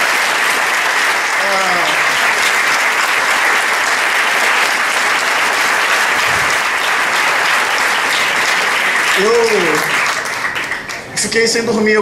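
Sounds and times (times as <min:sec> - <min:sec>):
large audience applauding: 0:00.0 - 0:11.3.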